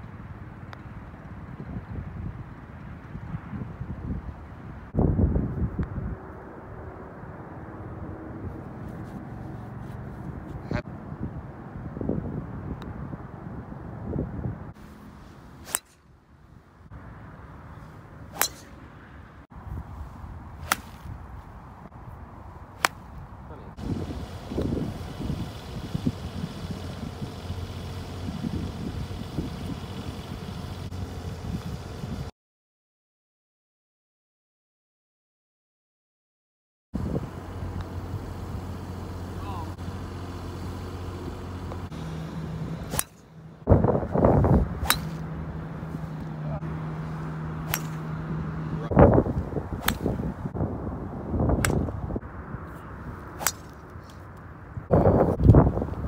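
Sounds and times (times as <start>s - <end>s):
wind rumble on microphone: 0.0s - 15.6s, 16.4s - 32.3s, 37.0s - 38.8s, 43.6s - 56.0s
golf club striking ball: 15.6s - 16.1s, 18.3s - 18.8s, 20.6s - 21.2s, 22.8s - 23.2s, 42.9s - 43.4s, 44.8s - 45.3s, 47.6s - 48.2s, 49.8s - 50.2s, 51.6s - 51.9s, 53.4s - 53.9s.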